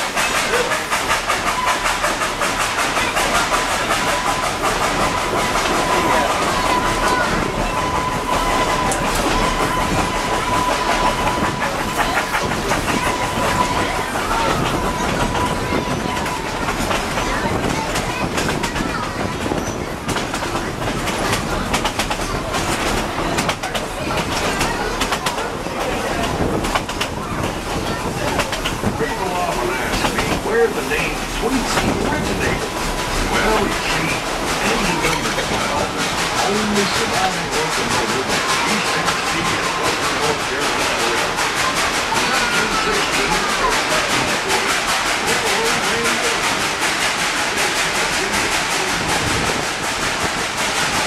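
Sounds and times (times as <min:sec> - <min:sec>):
train wheels clattering over rail joints: 0:00.0 - 0:51.0.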